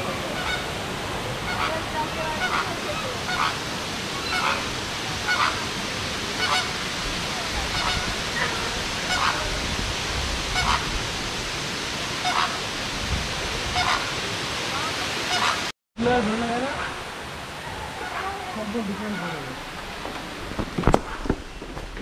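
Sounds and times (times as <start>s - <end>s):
steady background hiss: 0.0s - 22.0s
bird calling: 1.4s - 5.7s, 6.4s - 9.6s, 10.5s - 11.0s, 12.2s - 12.7s, 13.7s - 15.7s, 17.6s - 21.8s.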